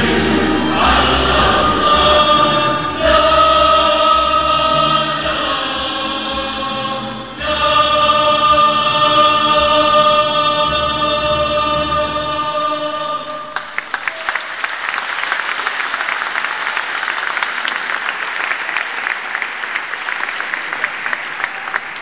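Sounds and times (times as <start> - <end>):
choir holding a chord: 0.0 - 13.6
audience applause: 13.6 - 22.0.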